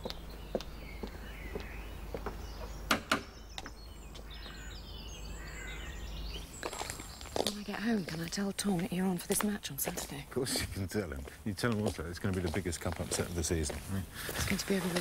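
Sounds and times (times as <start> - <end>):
light footsteps: 0.0 - 2.8, 6.4 - 15.0
birds chirping: 0.0 - 15.0
low outdoor background: 0.0 - 15.0.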